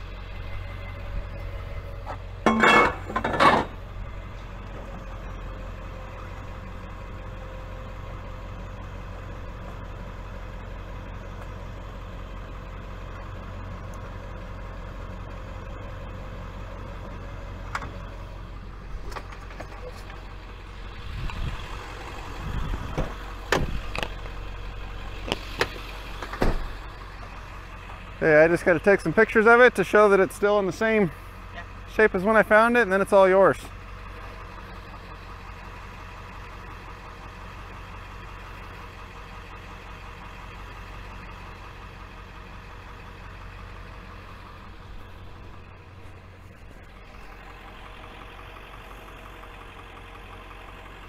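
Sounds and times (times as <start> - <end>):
truck engine idling: 0.0 - 51.0
loud metallic clanks: 2.4 - 3.8.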